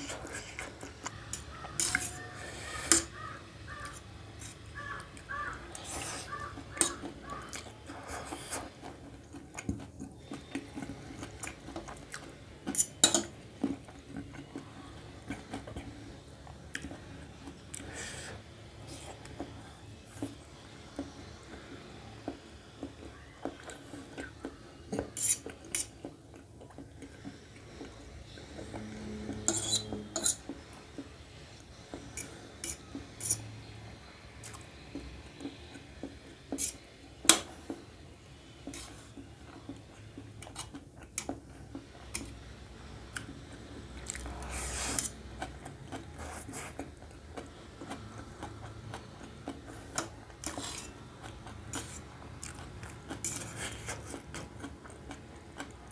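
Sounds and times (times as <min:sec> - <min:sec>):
fork clinking on steel plate: 0:01.3 - 0:02.2, 0:29.3 - 0:30.5.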